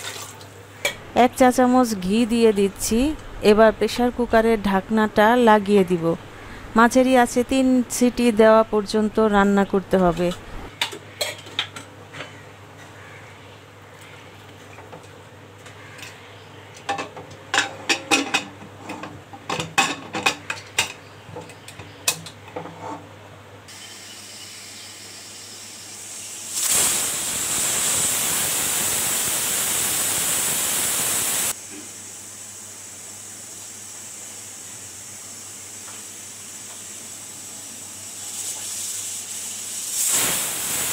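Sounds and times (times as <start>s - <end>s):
pressure cooker whistle hissing: 23.7s - 31.5s, 38.1s - 40.9s.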